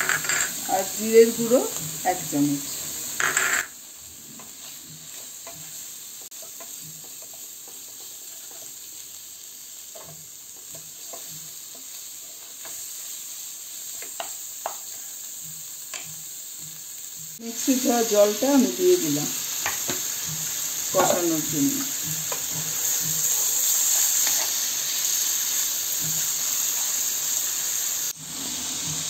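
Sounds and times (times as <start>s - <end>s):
hot oil sizzling: 0.0s - 29.0s
wooden spatula scraping a pan: 19.3s - 27.0s.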